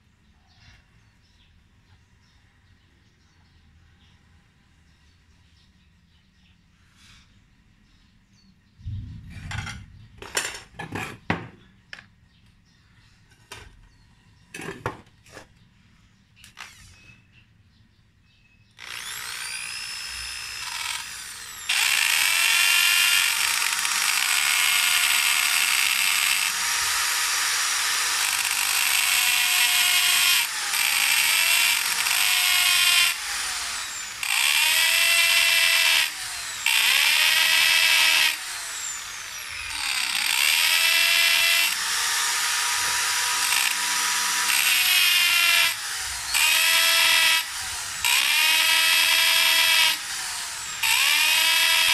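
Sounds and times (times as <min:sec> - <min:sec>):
electric drill boring wood: 0:16.6 - 0:17.0, 0:18.8 - 0:51.9.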